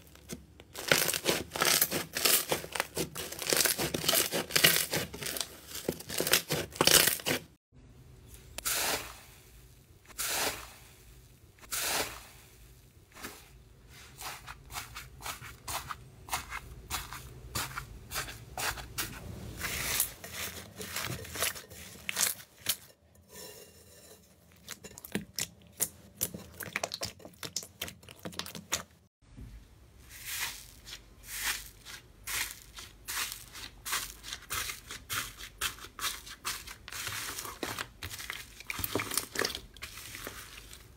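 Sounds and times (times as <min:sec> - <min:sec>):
slime squelching: 0:00.0 - 0:07.6, 0:13.2 - 0:23.5, 0:24.5 - 0:29.1, 0:30.2 - 0:40.9
slime crackling and popping: 0:00.2 - 0:07.4.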